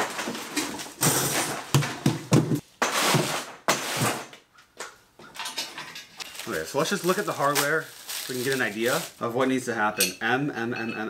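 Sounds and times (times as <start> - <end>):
cardboard and paper rustling: 6.2 - 9.2.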